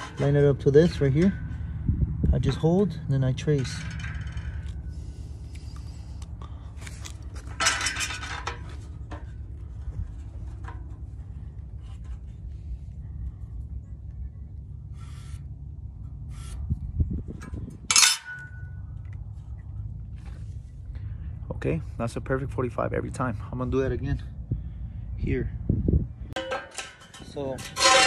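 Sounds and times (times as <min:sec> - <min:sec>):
metal scraping on steel tubing: 0:00.0 - 0:01.4, 0:14.9 - 0:18.9, 0:26.4 - 0:28.0
low rumble: 0:00.0 - 0:26.4
sharp metallic clink: 0:17.8 - 0:19.0.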